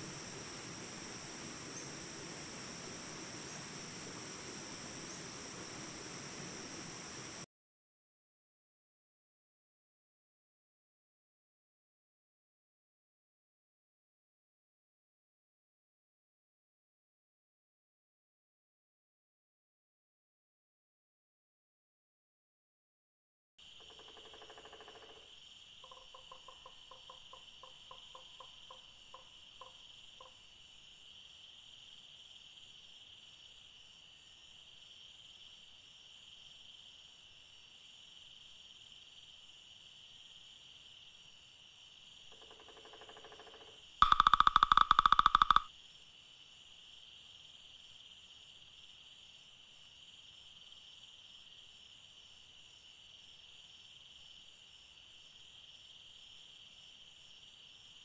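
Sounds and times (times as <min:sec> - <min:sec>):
high insect chorus: 0:00.0 - 0:07.5, 0:23.6 - 0:58.0
woodpecker drumming on wood: 0:23.8 - 0:30.4, 0:42.3 - 0:45.7
bird call notes: 0:44.0 - 0:45.7.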